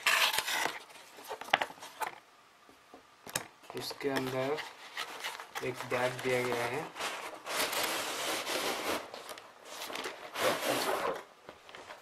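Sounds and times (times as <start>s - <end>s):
fabric scraping against cardboard: 6.0s - 11.2s.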